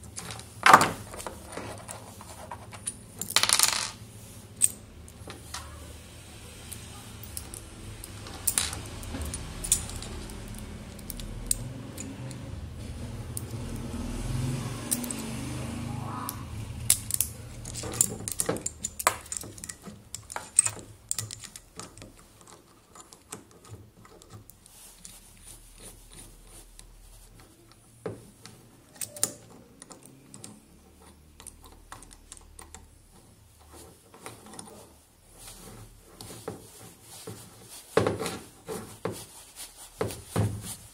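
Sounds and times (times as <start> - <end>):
low rustling handling noise: 0.0 - 6.2, 32.8 - 40.9.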